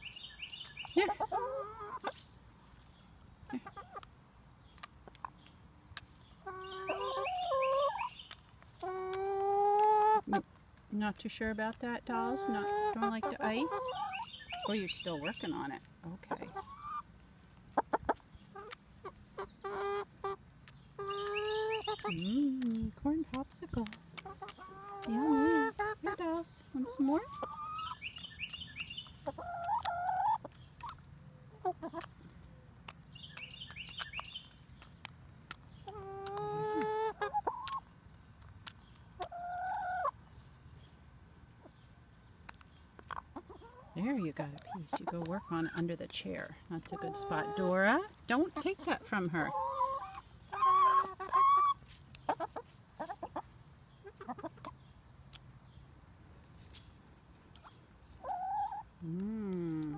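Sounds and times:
hens clucking: 0:00.7 - 0:02.3, 0:03.4 - 0:04.2, 0:06.0 - 0:10.6, 0:11.6 - 0:32.4, 0:35.5 - 0:38.0, 0:38.6 - 0:40.5, 0:42.5 - 0:54.9, 0:57.5 - 0:59.9
hens clucking softly: 0:01.0 - 0:02.2, 0:26.9 - 0:28.0, 0:35.8 - 0:37.8, 0:46.9 - 0:54.9, 0:57.6 - 0:58.9
beaks pecking: 0:16.4 - 0:40.1.

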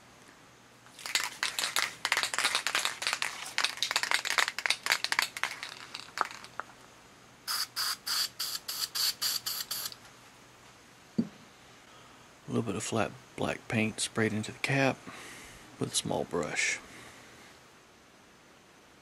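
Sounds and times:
spray can ball rattling: 0:00.9 - 0:06.8, 0:07.5 - 0:10.0
spray paint hissing: 0:01.0 - 0:06.6, 0:07.5 - 0:10.0.

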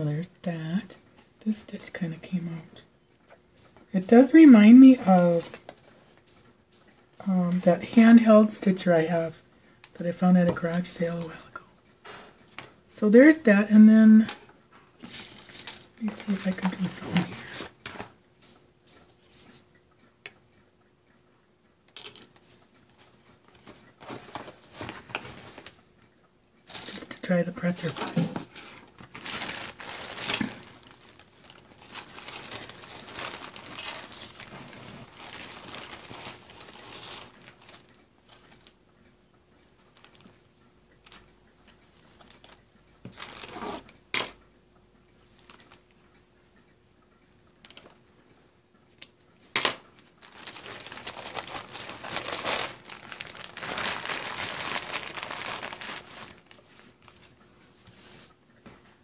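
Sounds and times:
plastic bag crinkling: 0:15.0 - 0:18.1, 0:26.7 - 0:38.8, 0:42.2 - 0:43.9, 0:49.6 - 0:56.9.

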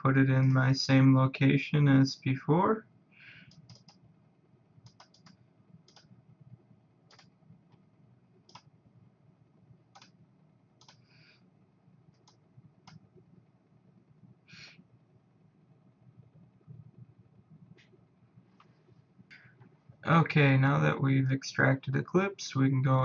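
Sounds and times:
computer mouse clicks: 0:03.5 - 0:04.0, 0:04.8 - 0:06.1, 0:07.1 - 0:07.8, 0:08.5 - 0:08.7, 0:09.9 - 0:10.2, 0:10.8 - 0:11.1, 0:12.1 - 0:13.0.

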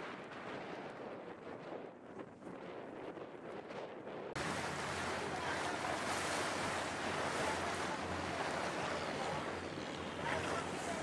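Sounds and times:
water rushing past hull: 0:04.3 - 0:11.0
low engine drone: 0:04.4 - 0:11.0.

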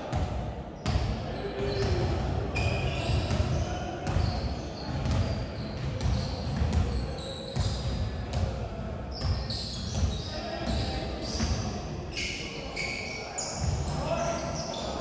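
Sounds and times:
basketballs bouncing on hardwood: 0:00.1 - 0:07.0
sneaker squeaks: 0:00.8 - 0:08.4, 0:09.1 - 0:15.0.

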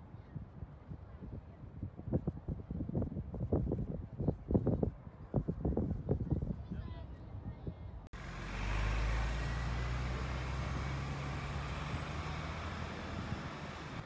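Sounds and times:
large vehicle engine humming: 0:08.2 - 0:14.0
road noise: 0:08.2 - 0:14.0.

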